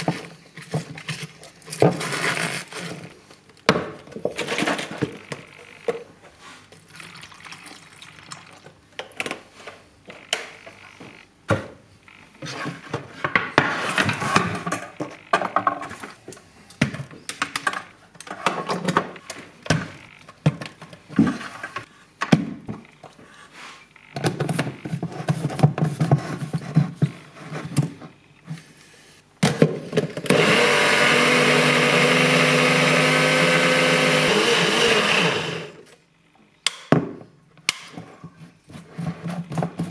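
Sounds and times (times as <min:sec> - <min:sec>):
blender motor running: 0:30.3 - 0:35.9.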